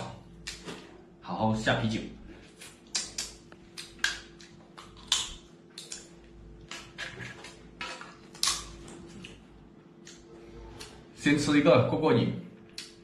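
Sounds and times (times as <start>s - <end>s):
crab shells cracking: 2.8s - 9.4s.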